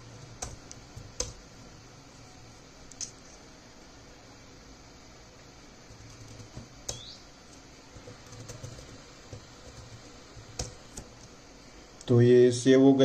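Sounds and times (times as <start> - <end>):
keyboard keystrokes: 0.4 - 1.4, 6.0 - 7.1, 8.0 - 11.1.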